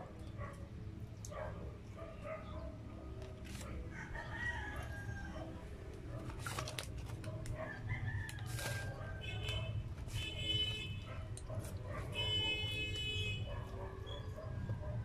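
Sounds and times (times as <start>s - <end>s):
chewing crunchy fries: 2.7s - 10.2s, 11.0s - 13.8s.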